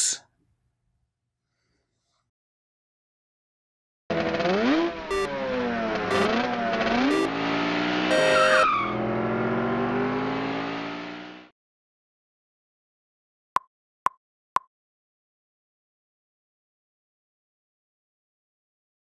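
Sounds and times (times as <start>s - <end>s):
race car engine revving: 4.1s - 11.5s.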